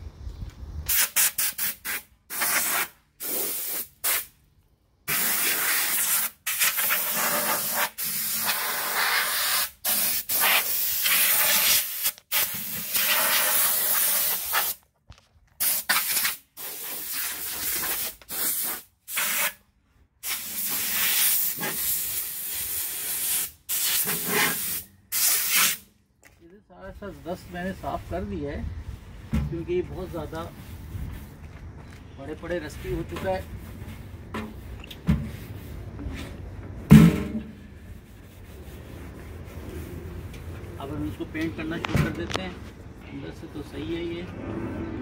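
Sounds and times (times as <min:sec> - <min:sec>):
air blow gun hissing bursts: 0:00.9 - 0:04.3, 0:05.1 - 0:14.8, 0:15.6 - 0:19.6, 0:20.2 - 0:25.8.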